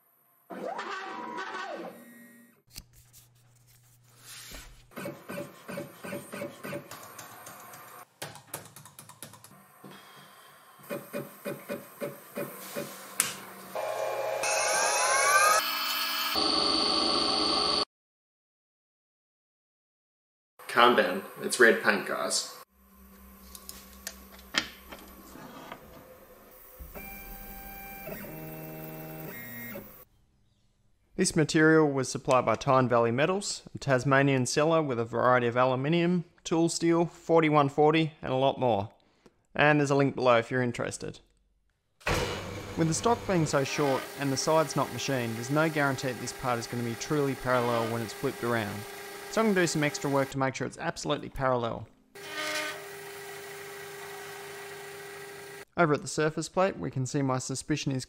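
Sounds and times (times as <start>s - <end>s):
laptop keys and mouse clicking: 6.9s - 9.6s
machine whirring: 26.5s - 30.0s, 42.1s - 50.3s
stepper motors whining: 26.5s - 30.0s.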